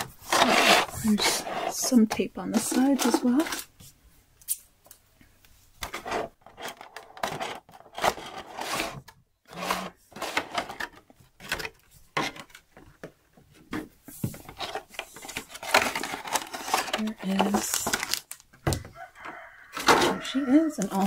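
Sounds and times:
plastic packaging crinkling: 0:14.6 - 0:18.6.

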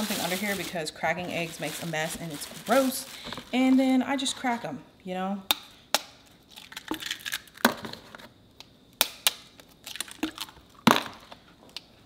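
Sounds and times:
eggshells cracking: 0:06.3 - 0:07.8, 0:09.0 - 0:11.1.

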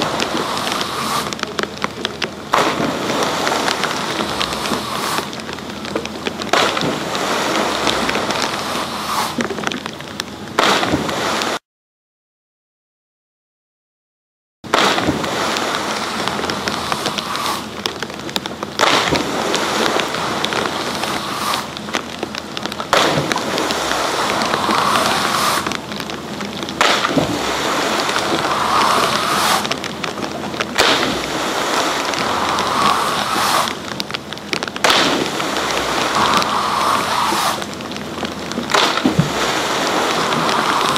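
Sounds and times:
skier splashing into water: 0:00.0 - 0:01.4, 0:02.5 - 0:05.4, 0:06.4 - 0:09.4, 0:10.6 - 0:11.6, 0:14.7 - 0:17.8, 0:18.8 - 0:21.8, 0:22.9 - 0:25.8, 0:26.7 - 0:29.8, 0:30.7 - 0:33.8, 0:34.8 - 0:37.8, 0:38.6 - 0:40.9
rushing churning water: 0:00.0 - 0:11.6, 0:14.7 - 0:40.9.

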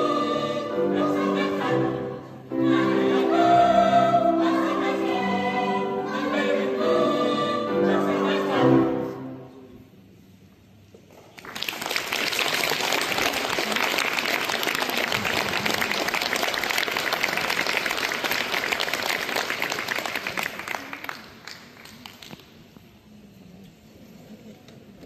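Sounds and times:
audience applause: 0:11.3 - 0:22.3.

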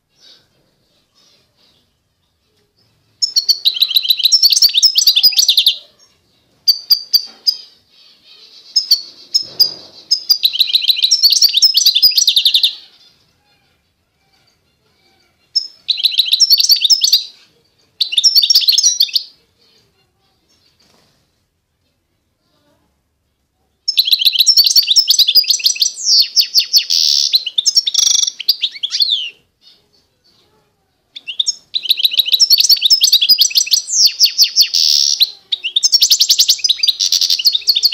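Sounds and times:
finch twittering: 0:03.1 - 0:06.1, 0:06.7 - 0:13.3, 0:15.5 - 0:17.4, 0:23.9 - 0:29.8, 0:31.2 - 0:37.9.

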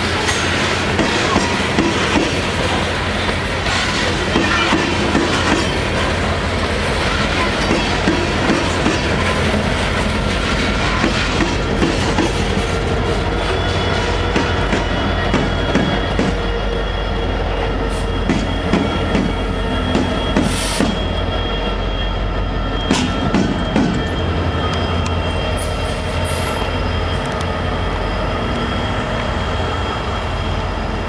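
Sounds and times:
train wheels clanking over rails: 0:00.0 - 0:16.6
diesel locomotives rumbling: 0:00.0 - 0:31.0.

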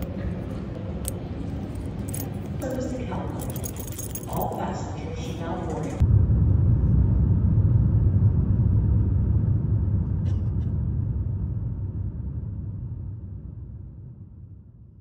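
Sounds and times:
airliner cabin engine rumble: 0:04.6 - 0:14.9.

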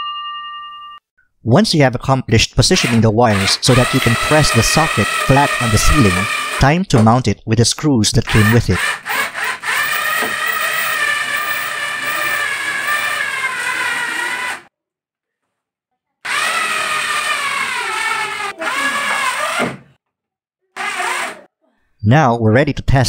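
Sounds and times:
electric screwdriver motor whining: 0:02.8 - 0:06.6, 0:08.3 - 0:14.7, 0:16.3 - 0:19.8, 0:20.8 - 0:21.4.

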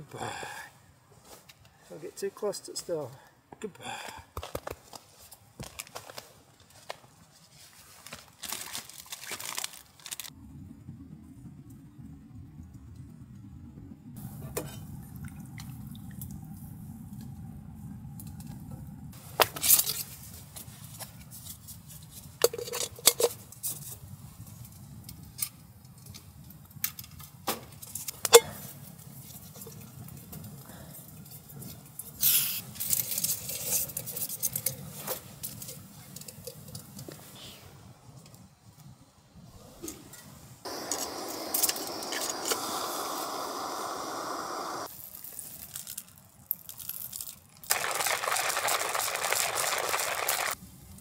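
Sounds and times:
steady low rumble: 0:10.4 - 0:19.2.

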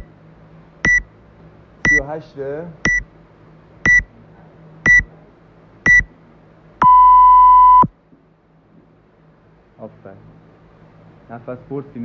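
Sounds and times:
short high timer beeps: 0:00.8 - 0:01.0, 0:03.9 - 0:04.1, 0:06.8 - 0:07.9
long low timer beep: 0:00.8 - 0:01.1, 0:03.9 - 0:04.1, 0:04.9 - 0:05.1, 0:05.9 - 0:06.1, 0:06.8 - 0:07.9.

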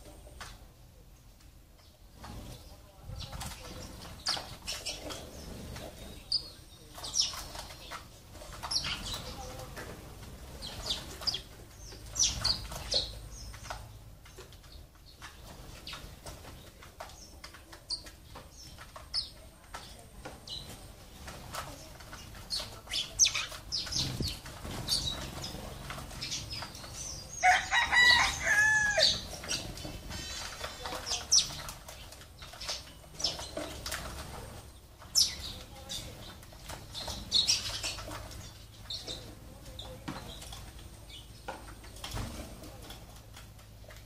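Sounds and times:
sparrows chirping: 0:00.0 - 0:44.0
wings fluttering: 0:19.8 - 0:40.9.

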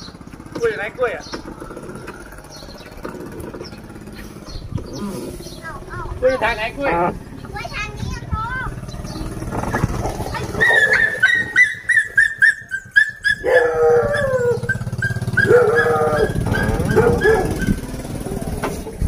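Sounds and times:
dog yelping: 0:10.4 - 0:18.0
dog howling: 0:10.6 - 0:17.8.

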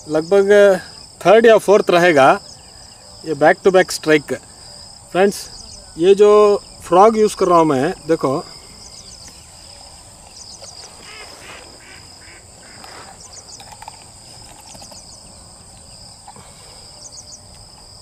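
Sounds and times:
insects droning: 0:00.0 - 0:18.0
short chirping calls: 0:04.6 - 0:17.6.

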